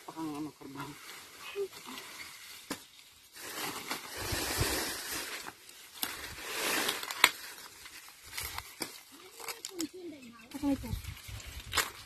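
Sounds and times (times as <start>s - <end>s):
corn stalks rustling: 0.0s - 12.0s
stalks snapping: 6.9s - 7.5s, 8.3s - 10.0s, 11.4s - 12.0s.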